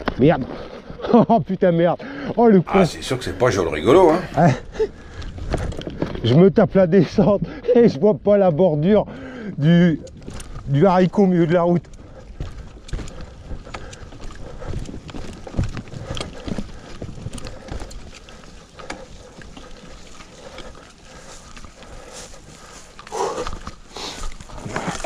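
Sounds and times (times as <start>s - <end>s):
bike tyres on bumpy ground: 2.8s - 7.4s, 8.0s - 25.0s
bike rattling and knocking: 9.6s - 23.8s.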